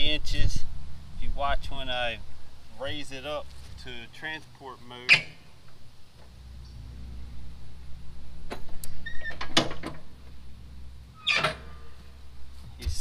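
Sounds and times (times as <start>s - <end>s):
low steady hum: 0.0s - 13.0s
metallic clicks and clunks: 5.1s - 5.8s, 8.5s - 10.4s, 11.2s - 11.8s.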